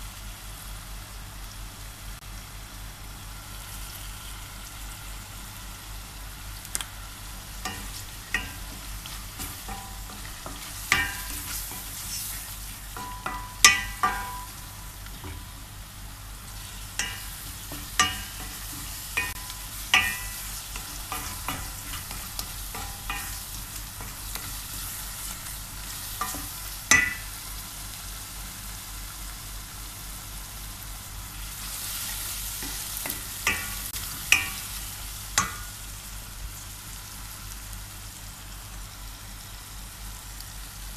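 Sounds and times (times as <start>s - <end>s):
onion frying sizzle: 0.0s - 40.9s
wooden spoon clacking on pot: 7.7s - 11.9s, 13.0s - 14.6s, 17.0s - 24.5s, 26.2s - 27.3s, 32.6s - 34.6s.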